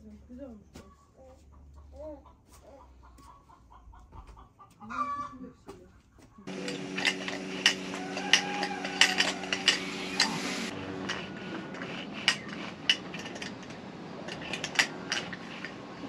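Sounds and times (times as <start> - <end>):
hens clucking: 0.8 - 16.0
steady mechanical hum: 6.4 - 16.0
sharp clinks and knocks: 6.5 - 15.8.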